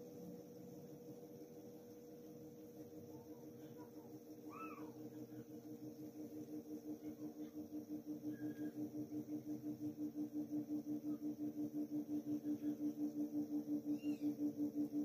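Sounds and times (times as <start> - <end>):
low pulsing hum: 0.0 - 15.0.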